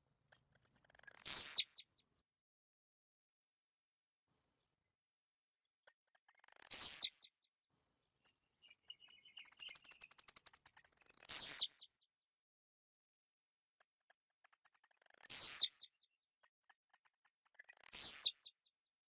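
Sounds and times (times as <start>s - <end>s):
bird high ticks: 0.3s - 1.8s, 5.9s - 7.2s, 8.3s - 11.4s, 13.8s - 15.8s, 16.6s - 18.4s.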